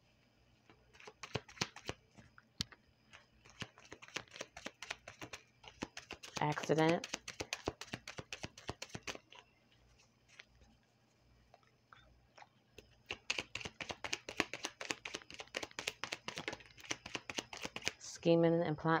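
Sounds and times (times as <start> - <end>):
cards being shuffled: 0.9 - 2.0, 3.1 - 9.4, 10.3 - 10.5, 13.0 - 18.0.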